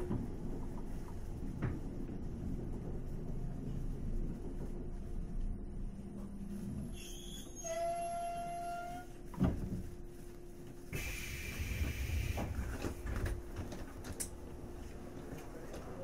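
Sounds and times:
electric train humming: 10.2s - 16.0s
hissing air burst: 10.9s - 12.6s.

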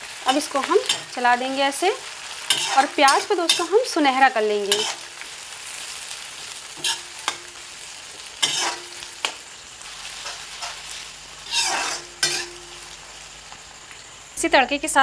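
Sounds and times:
onions sizzling in oil: 0.0s - 15.0s
metal spatula scraping a pan: 2.3s - 5.2s, 6.8s - 7.6s, 8.4s - 9.3s, 10.1s - 12.9s.

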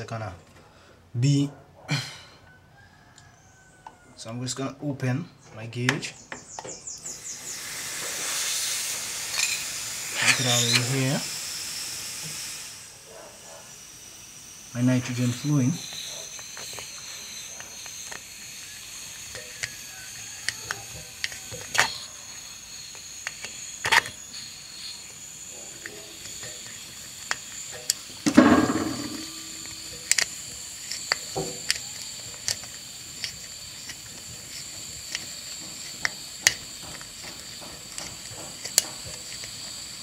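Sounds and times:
thin high whistling: 6.4s - 36.3s
gas hissing from a tube: 6.6s - 40.0s
deburring tool scraping and clicking: 7.4s - 11.3s, 13.1s - 40.0s
rough scrape or bump: 28.2s - 29.6s.

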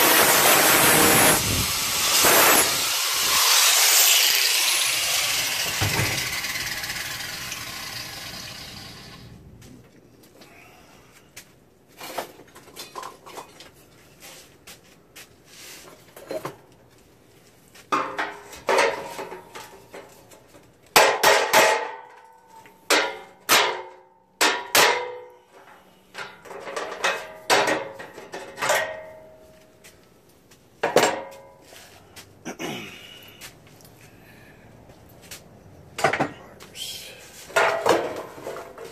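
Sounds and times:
hammer striking sheet metal: 2.2s - 2.9s, 22.9s - 25.3s.

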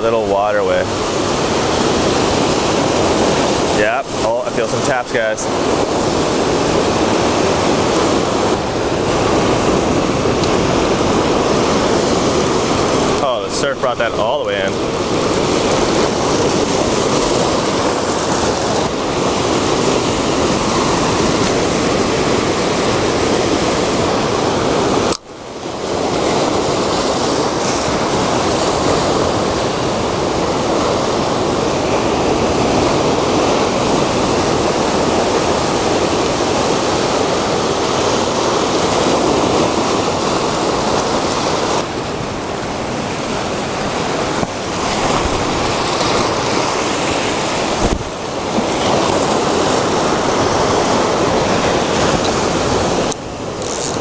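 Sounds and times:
surf washing over rocks: 0.0s - 54.0s.

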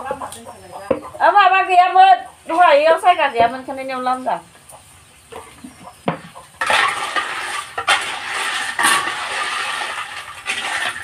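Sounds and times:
food sizzling in pot: 6.6s - 11.0s
spatula scraping pot: 6.6s - 11.0s.

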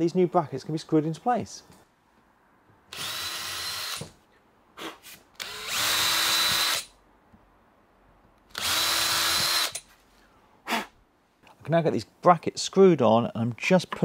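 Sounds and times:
cordless drill boring into wood: 2.9s - 4.1s, 5.4s - 6.9s, 8.5s - 9.9s.

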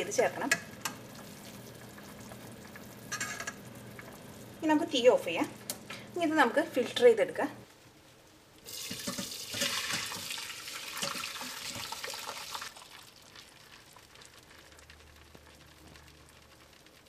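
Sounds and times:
liquid pouring through a strainer: 8.7s - 14.9s.

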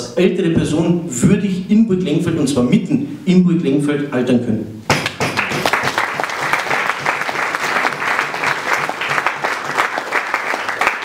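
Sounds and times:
audience applauding: 5.0s - 11.0s.

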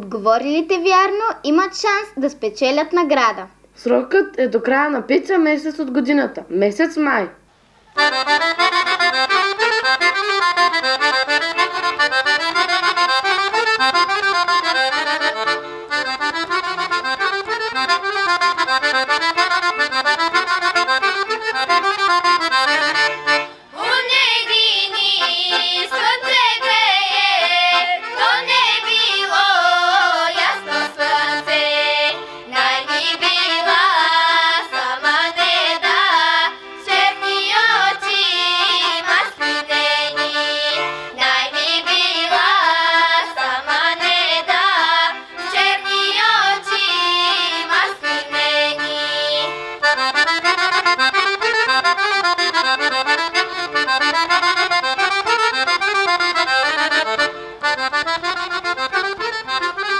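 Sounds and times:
accordion playing folk tune: 7.6s - 59.9s
girls singing folk style: 23.7s - 49.9s.

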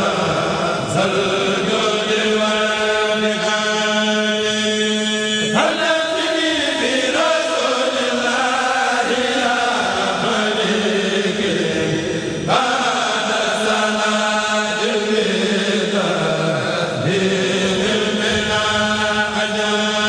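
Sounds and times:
men chanting through microphones: 0.0s - 20.0s.

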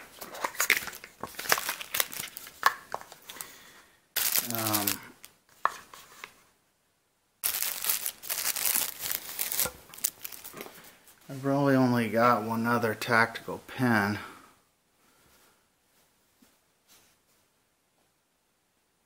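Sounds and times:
plastic packaging crinkling: 0.0s - 3.5s, 4.2s - 5.4s, 7.4s - 10.9s
person speaking a word: 4.4s - 5.1s.

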